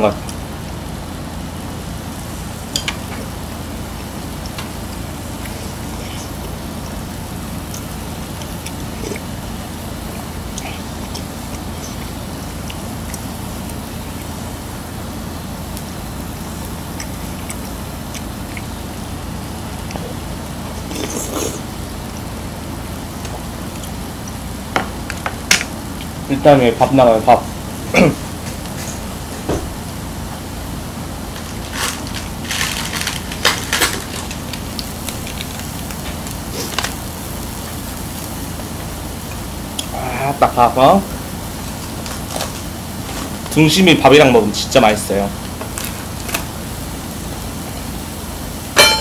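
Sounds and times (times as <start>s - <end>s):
low steady hum: 0.0s - 49.0s
person chewing: 3.1s - 14.5s, 16.6s - 22.4s, 23.0s - 25.2s, 34.2s - 38.4s, 39.2s - 39.9s
food sizzling on grill plate: 31.2s - 40.4s, 45.4s - 49.0s
rustles and crackles: 31.3s - 39.4s.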